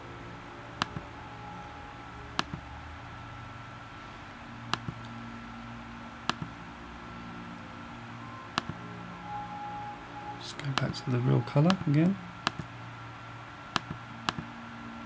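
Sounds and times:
low steady hum: 0.0 - 15.0
computer mouse clicks: 4.7 - 5.1, 6.2 - 6.5, 12.4 - 12.7, 13.8 - 14.4.

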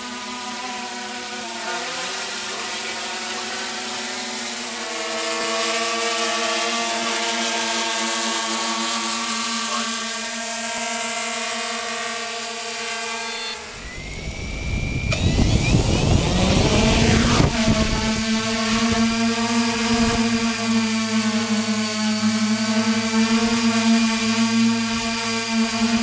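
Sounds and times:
drone propellers humming: 2.4 - 26.0
propeller downwash buffeting microphone: 13.6 - 23.5.

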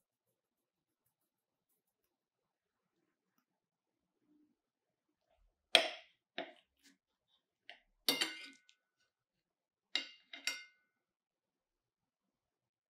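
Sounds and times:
cutlery clinking on ceramic plate: 8.1 - 8.7, 10.0 - 10.9.

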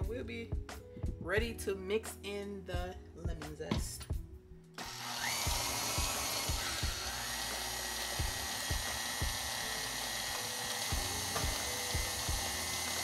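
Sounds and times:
stand mixer motor whine: 4.8 - 13.0
beater knocking in bowl: 10.9 - 12.6.

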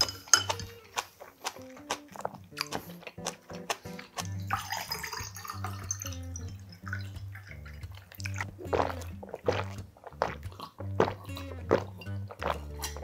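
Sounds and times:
background music: 0.0 - 13.0
loud gulps: 0.6 - 13.0
water poured into a glass: 4.4 - 7.8.

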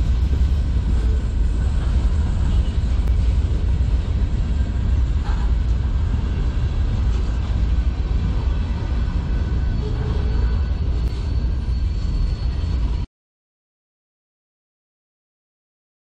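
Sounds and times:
freight cars rumbling on rails: 0.0 - 13.1.

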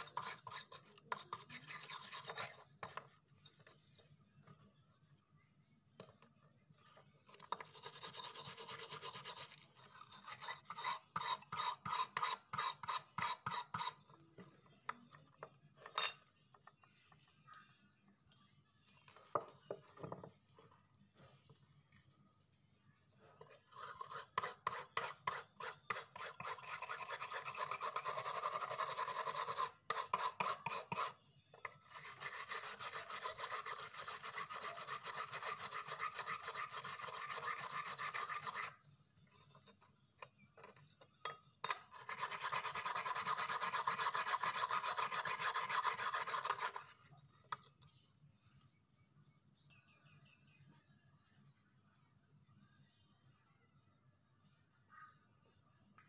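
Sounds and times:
wire brush scrubbing rusty steel: 0.0 - 4.0, 6.8 - 14.2, 23.4 - 39.8, 41.6 - 47.6.

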